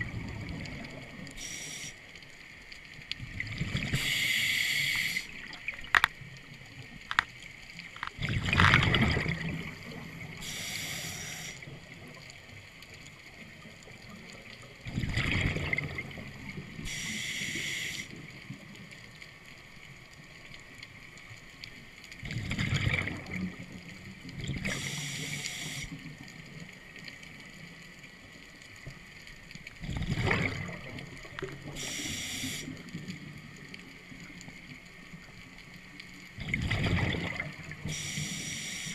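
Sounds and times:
exhaled bubbles gurgling: 0:00.0 - 0:01.9, 0:03.1 - 0:07.2, 0:07.9 - 0:19.1, 0:22.2 - 0:27.7, 0:29.6 - 0:38.9
regulator valve hissing: 0:01.4 - 0:02.0, 0:04.0 - 0:05.3, 0:10.4 - 0:11.6, 0:16.8 - 0:18.1, 0:24.8 - 0:26.0, 0:31.8 - 0:32.8, 0:37.9 - 0:38.9
diving gear clicks: 0:05.6 - 0:09.2.

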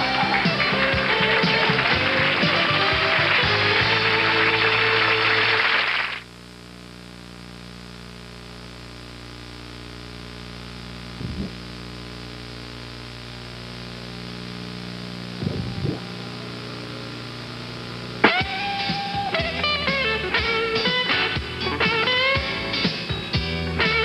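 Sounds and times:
videotape electrical hum and hiss: 0:00.0 - 0:24.0
short low blips: 0:15.3 - 0:16.3.

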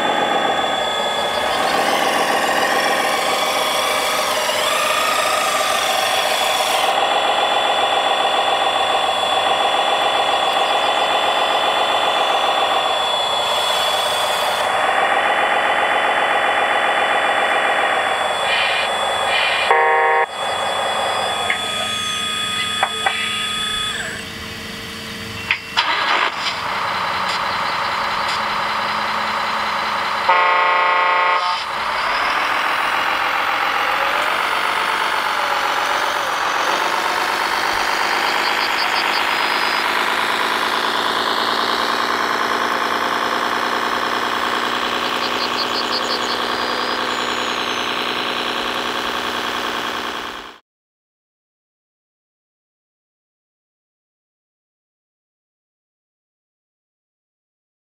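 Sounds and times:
simulated diesel engine sound: 0:00.0 - 0:50.6
short horn blast: 0:19.6 - 0:20.3, 0:30.3 - 0:31.7.

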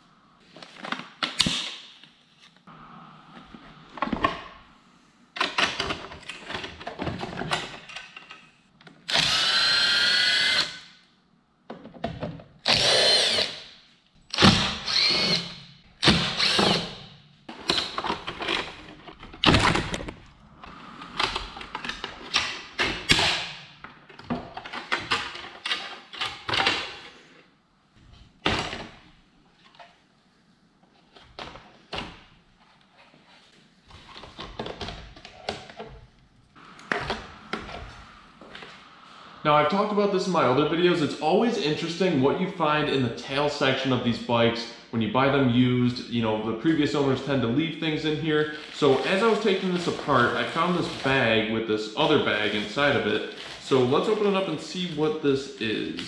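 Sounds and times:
power driver whirring: 0:09.1 - 0:10.8, 0:12.7 - 0:13.6, 0:14.3 - 0:17.1.

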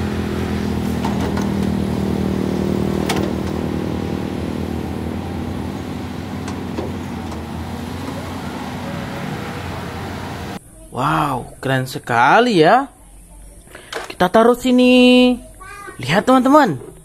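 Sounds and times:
excavator diesel engine running: 0:00.0 - 0:10.6.

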